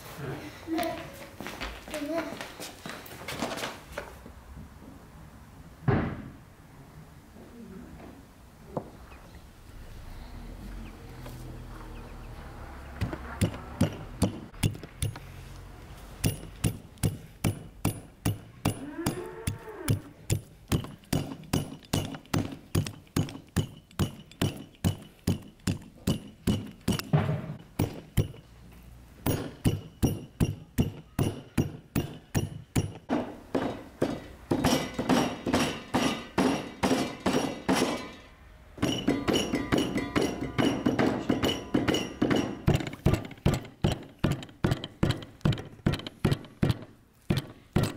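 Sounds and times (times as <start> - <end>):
cleaver chopping meat on wood: 13.0 - 15.2, 16.2 - 28.4, 29.3 - 33.1, 41.8 - 47.9.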